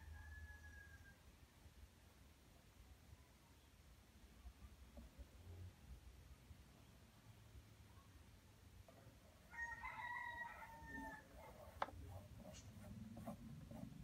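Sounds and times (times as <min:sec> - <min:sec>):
rooster crowing: 0:00.0 - 0:01.2, 0:09.5 - 0:11.3.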